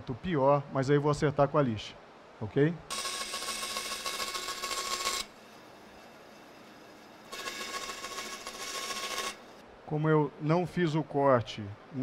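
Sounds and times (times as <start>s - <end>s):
bandsaw cutting wood: 2.9s - 5.4s, 7.2s - 9.6s.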